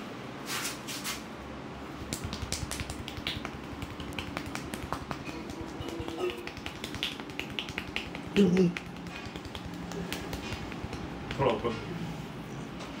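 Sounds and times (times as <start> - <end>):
finger taps on scalp: 2.0 - 11.7
hands rubbing hair: 2.0 - 11.8.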